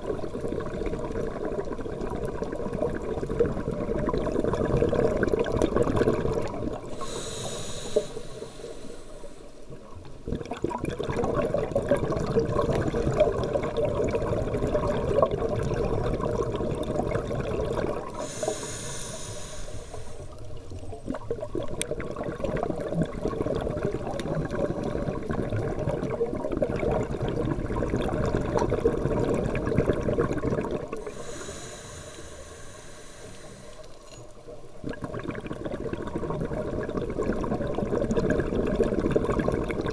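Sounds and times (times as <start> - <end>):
bubbling crackling exhalation: 0.0 - 8.8, 10.2 - 20.3, 21.0 - 33.8, 34.8 - 39.9
regulator hissing inhalation: 6.9 - 9.6, 18.1 - 20.4, 31.0 - 34.0.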